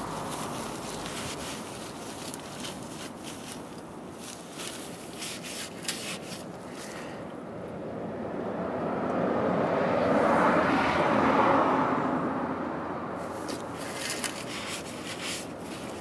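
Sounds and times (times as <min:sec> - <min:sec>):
plastic sheeting crinkling: 0:00.0 - 0:07.2, 0:13.2 - 0:16.0
vehicle passing by: 0:06.8 - 0:16.0.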